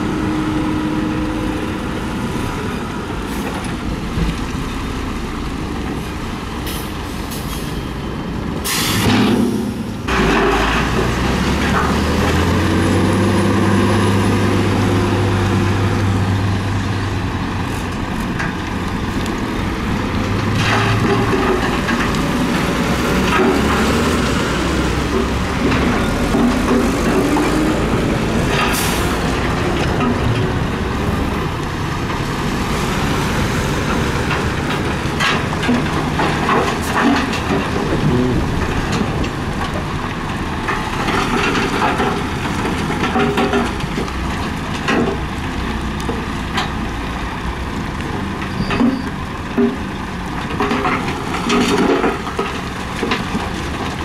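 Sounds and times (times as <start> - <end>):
diesel truck engine running: 0.0 - 54.0
air brake hiss: 8.6 - 9.1.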